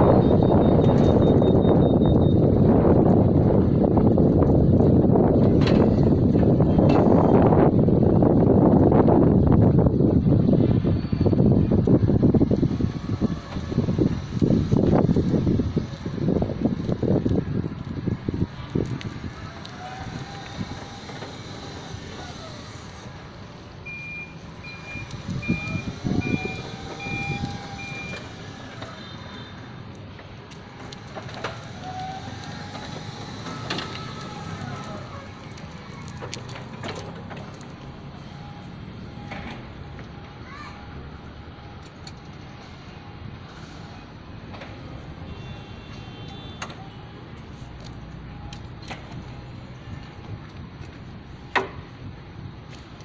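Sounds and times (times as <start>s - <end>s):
reach truck warning alarm beeping: 0.0s - 2.6s, 23.8s - 28.4s, 37.7s - 43.4s
low rumble of truck travelling: 0.0s - 53.0s
steady background noise: 0.0s - 53.0s
sharp clicks and knocks: 50.8s - 51.9s.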